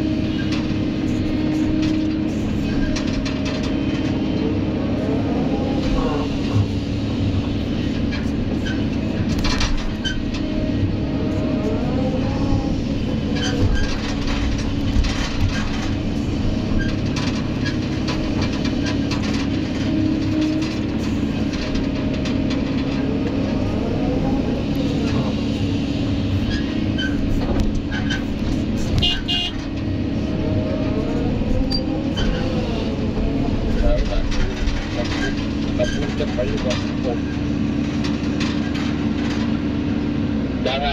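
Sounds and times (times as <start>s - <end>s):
excavator engine and hydraulics: 0.0s - 40.9s.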